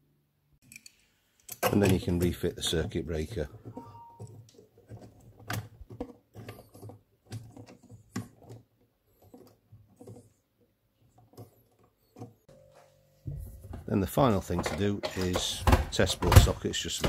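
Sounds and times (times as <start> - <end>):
plastic clicks and knocks of circuit breaker: 14.4 - 17.0.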